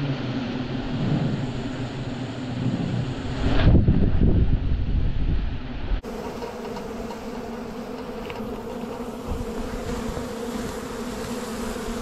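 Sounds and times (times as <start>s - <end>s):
bee swarm buzzing: 0.0s - 3.4s, 6.0s - 12.0s.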